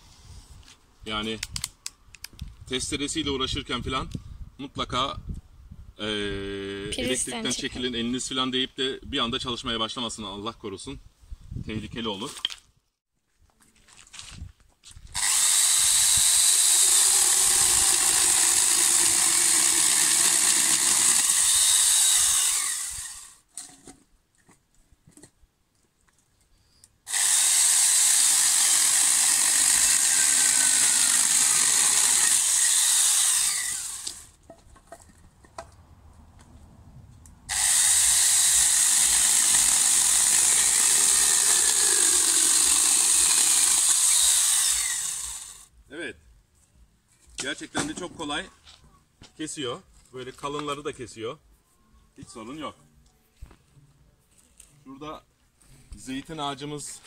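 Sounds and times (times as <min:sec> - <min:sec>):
angle grinder chainsaw cutting wood: 0:15.2 - 0:23.4, 0:27.1 - 0:34.4, 0:37.5 - 0:45.7.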